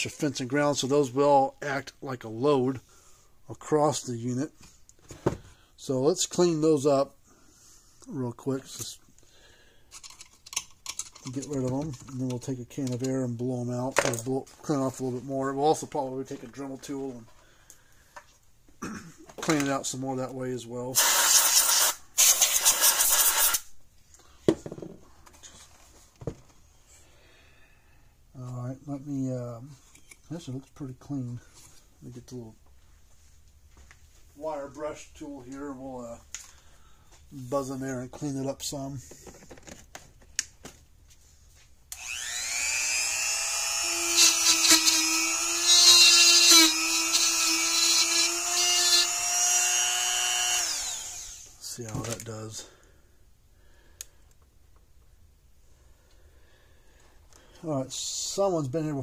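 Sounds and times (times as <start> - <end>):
compressed air hissing: 21.0 - 23.7
rotary tool motor whining: 42.0 - 51.6.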